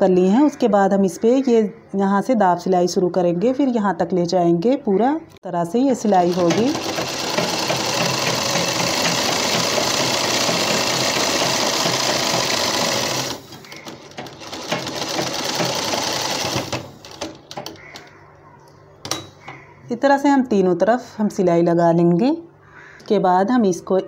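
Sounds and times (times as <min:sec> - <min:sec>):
sewing machine running: 0:06.0 - 0:17.4.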